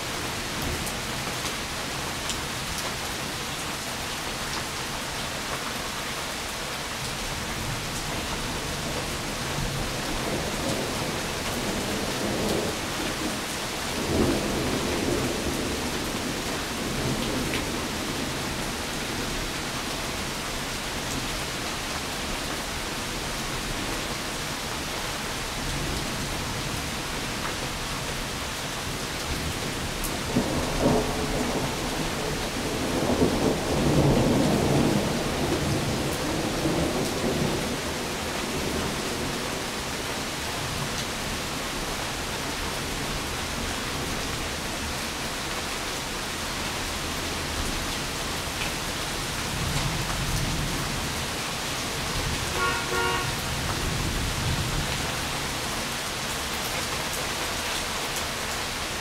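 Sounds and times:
steady rain: 0.0s - 59.0s.

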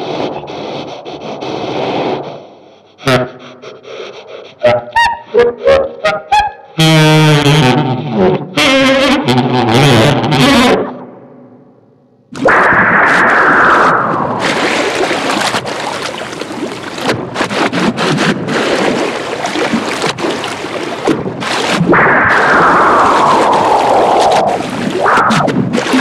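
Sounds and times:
long falling whooshes: 21.9s - 25.5s.

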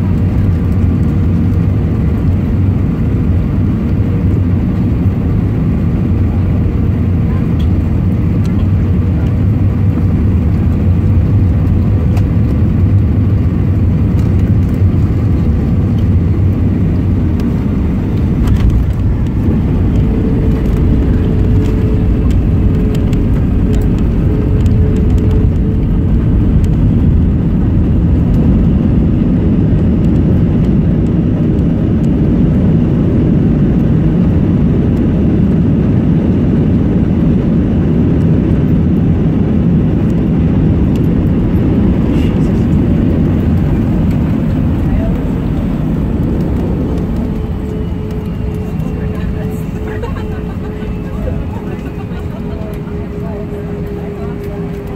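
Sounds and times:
aircraft engine and airflow rumble: 0.0s - 54.9s.

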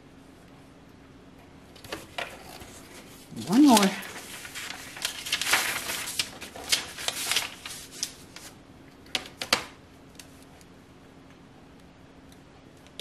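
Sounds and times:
paper rustling and sliding: 1.8s - 8.6s.

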